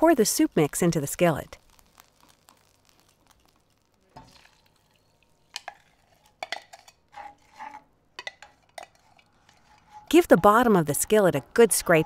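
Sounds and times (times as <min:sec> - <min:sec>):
spoon stirring in water: 0:04.2 - 0:12.0.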